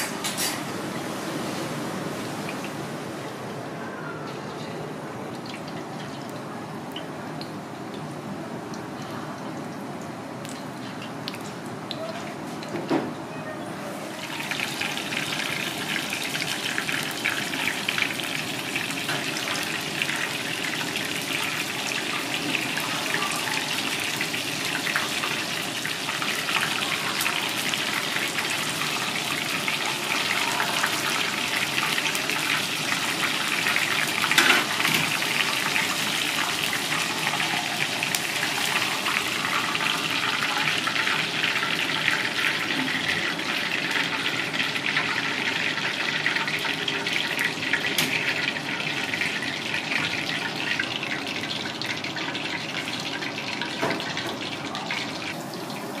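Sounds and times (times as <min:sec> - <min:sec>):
fish deep-frying in hot oil: 0:13.9 - 0:56.0.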